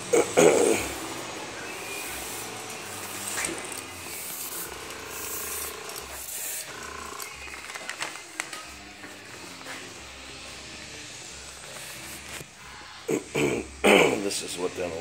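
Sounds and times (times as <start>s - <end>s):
airbrush spraying hiss: 0.8s - 5.6s.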